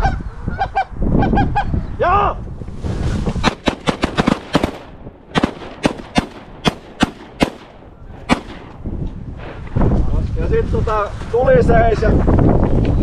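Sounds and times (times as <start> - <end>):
shotgun shots: 3.4 - 8.8.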